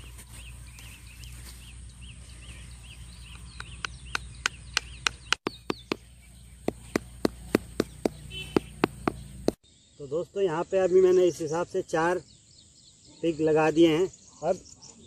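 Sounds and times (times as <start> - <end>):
bird chirping: 0.0 - 15.0
wood knocking pegs into ground: 3.6 - 9.6.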